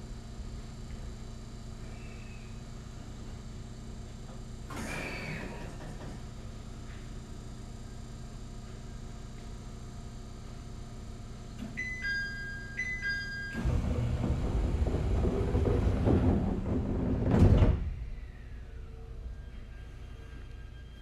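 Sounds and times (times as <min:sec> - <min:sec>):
train doors sliding shut: 0:13.5 - 0:18.1.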